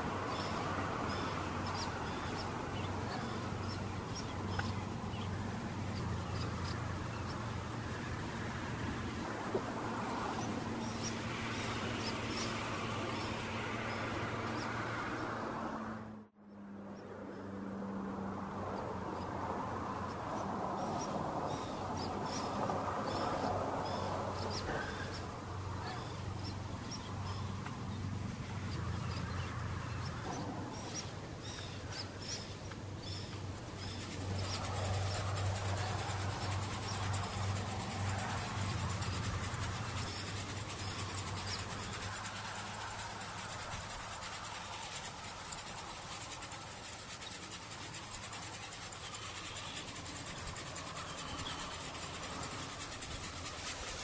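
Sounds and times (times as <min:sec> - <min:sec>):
small birds chirping: 0:00.0 - 0:15.4, 0:19.9 - 0:54.0
high hiss: 0:20.8 - 0:54.0.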